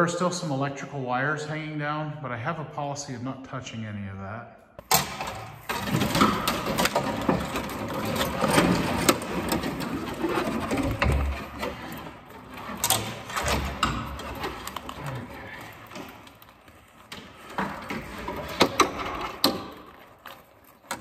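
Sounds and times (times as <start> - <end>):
wire rattling and scraping: 4.9 - 21.0.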